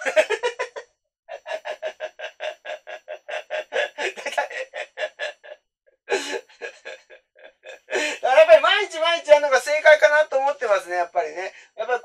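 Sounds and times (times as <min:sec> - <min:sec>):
man laughing: 0:00.0 - 0:08.7.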